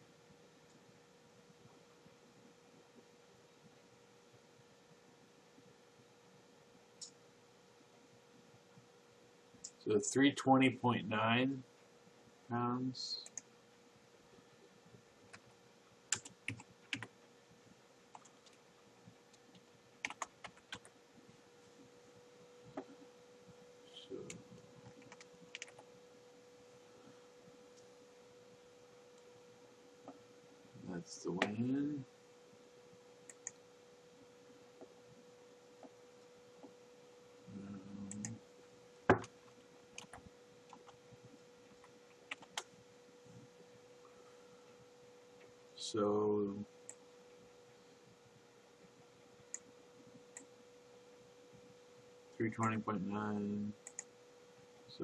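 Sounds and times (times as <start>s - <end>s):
faint steady hum: 0.0s - 55.0s
keyboard typing: 16.1s - 17.1s, 18.1s - 18.6s, 19.3s - 20.9s, 24.2s - 25.9s, 37.6s - 38.4s, 41.8s - 42.7s, 53.8s - 54.1s
keyboard keystrokes: 20.0s - 20.9s, 24.9s - 25.8s.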